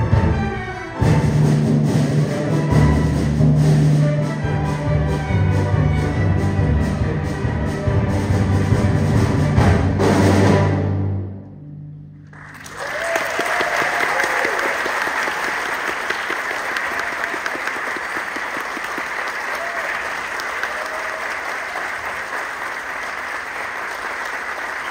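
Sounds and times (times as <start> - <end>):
audience applause: 12.2 - 24.9
people cheering: 12.3 - 24.9.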